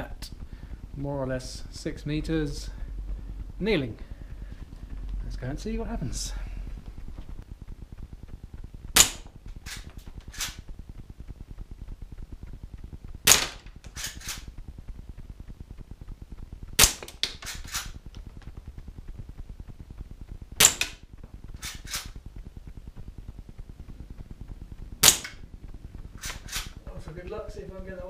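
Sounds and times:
airgun shots: 8.9s - 10.6s, 13.2s - 14.5s, 16.8s - 18.0s, 20.6s - 21.0s, 21.6s - 22.2s, 25.0s - 25.4s, 26.2s - 26.8s.

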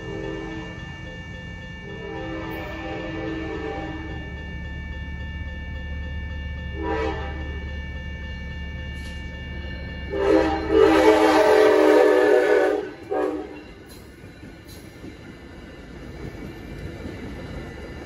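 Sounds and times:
train horn blasts: 0.0s - 0.7s, 1.9s - 4.2s, 6.8s - 7.5s, 10.1s - 13.7s
crossing bell ringing: 0.0s - 18.0s
train rumble: 0.0s - 18.0s.

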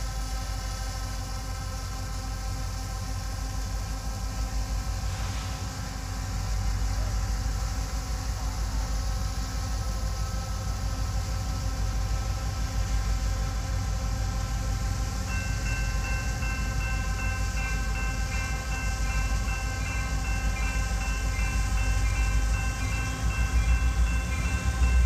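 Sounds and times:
diesel locomotives rumbling: 0.0s - 25.0s
crossing bell ringing: 15.2s - 25.0s.

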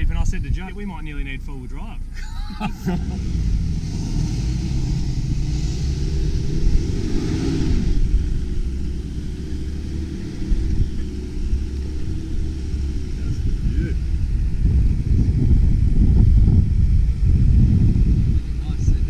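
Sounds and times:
engine running under load: 2.5s - 19.0s.

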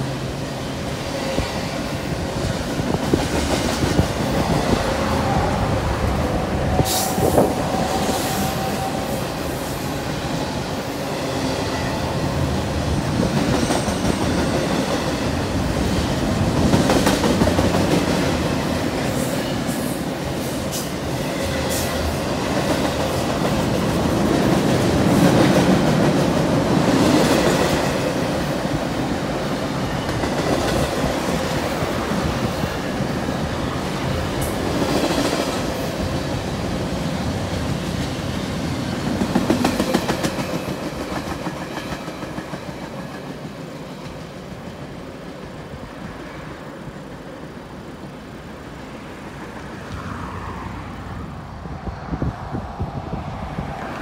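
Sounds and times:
train wheels rolling on rails: 0.0s - 54.0s.

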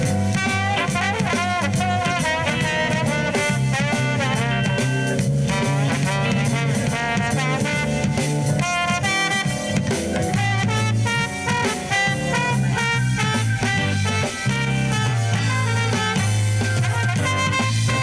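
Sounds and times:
drums and bass swing groove: 0.0s - 18.0s
trombone playing: 0.0s - 18.0s.

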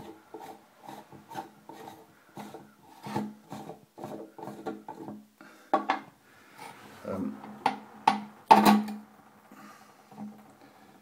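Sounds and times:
plastic lid scraping: 0.0s - 5.2s.

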